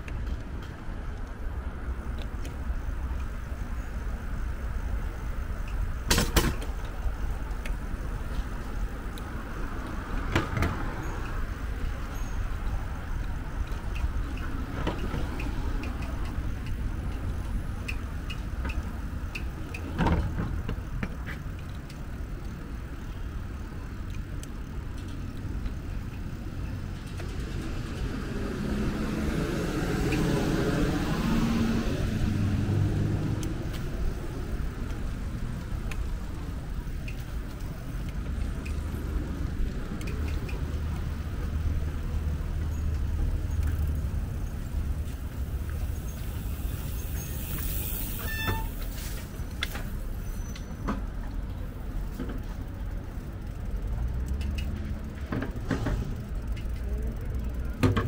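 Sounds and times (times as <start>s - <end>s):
low traffic rumble: 0.0s - 58.0s
motor vehicle passing: 26.5s - 48.2s.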